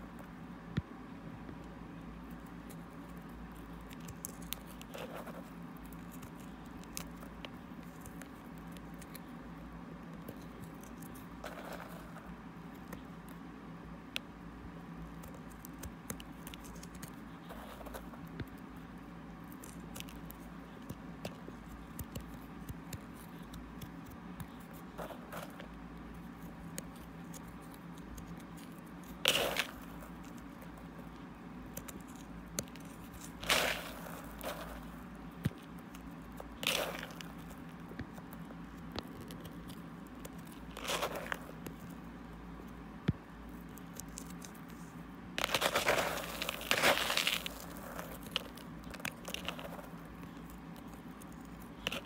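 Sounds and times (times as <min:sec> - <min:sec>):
crystals crackling and scraping: 0:10.2 - 0:13.0, 0:15.2 - 0:18.3, 0:19.4 - 0:42.0, 0:43.5 - 0:52.0
crystal clumps crunching: 0:45.4 - 0:50.0.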